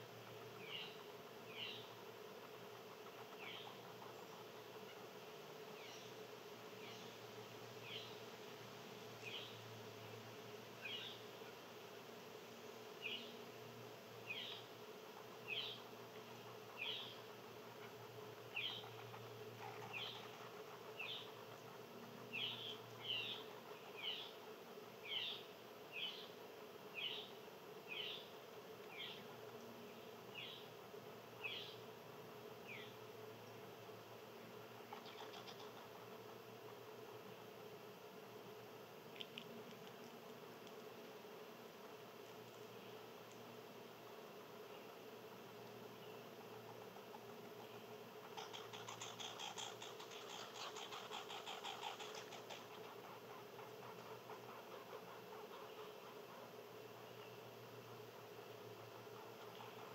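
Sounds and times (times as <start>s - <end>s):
steady low hum: 0.0s - 59.9s
small animal chirping: 18.5s - 21.7s, 34.9s - 36.0s, 46.5s - 56.5s.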